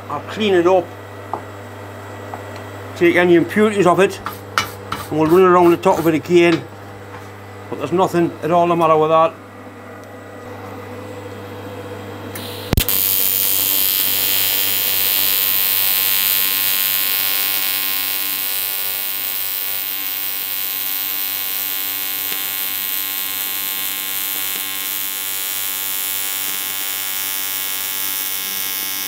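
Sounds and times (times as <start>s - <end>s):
welding arc buzzing and hissing: 12.3s - 29.0s
welding arc striking with a crack: 12.4s - 29.0s.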